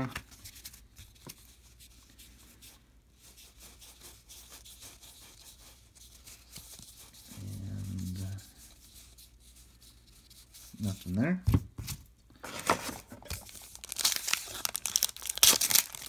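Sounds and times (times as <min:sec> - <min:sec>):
cards rustling and clicking: 0:11.8 - 0:16.0.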